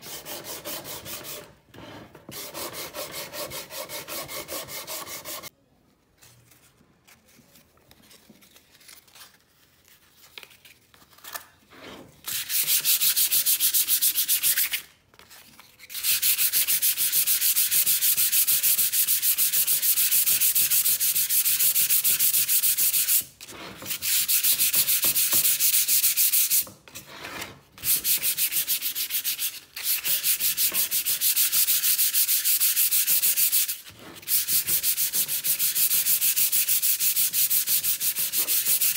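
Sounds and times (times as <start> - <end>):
sandpaper rubbing on wood: 2.4 - 5.5, 15.9 - 23.2, 23.8 - 26.6, 27.8 - 38.9.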